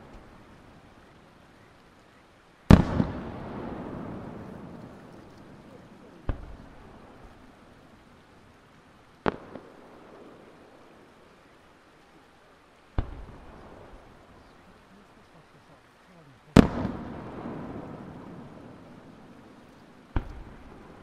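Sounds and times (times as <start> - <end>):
firework bangs with echo: 2.7 - 4.8, 5.4 - 7.4, 13.0 - 14.0, 16.6 - 19.0, 20.1 - 21.0.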